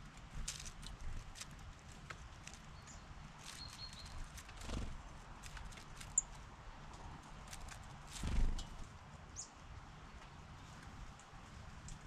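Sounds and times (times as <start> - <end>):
bird chirps: 2.8 - 4.2.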